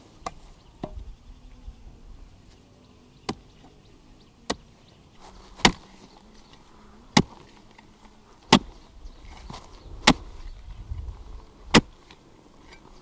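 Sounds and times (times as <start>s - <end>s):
blade chopping strikes: 5.6s - 5.9s.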